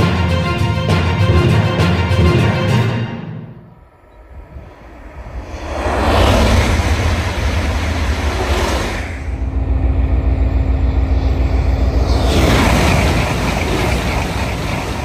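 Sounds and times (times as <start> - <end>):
high-speed train rushing past: 3.1 - 15.0.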